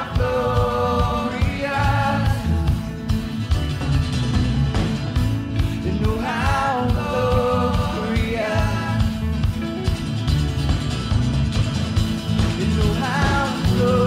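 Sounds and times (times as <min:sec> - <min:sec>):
person singing: 0:00.0 - 0:02.9, 0:05.8 - 0:09.4, 0:12.5 - 0:14.0
drums keeping a steady beat: 0:00.0 - 0:14.0
worship band music: 0:00.0 - 0:14.0.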